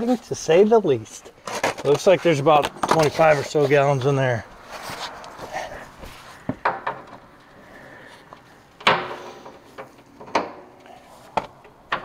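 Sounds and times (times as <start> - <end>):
sharp knocks and clanks: 6.4 - 7.3, 8.3 - 10.8, 11.4 - 12.0.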